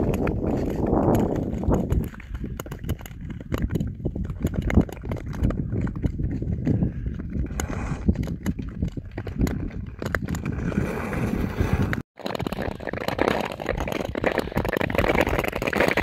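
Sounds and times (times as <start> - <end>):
ski poles tapping ice: 0.0 - 10.8, 12.2 - 16.0
skate blades clacking on ice: 7.6 - 16.0.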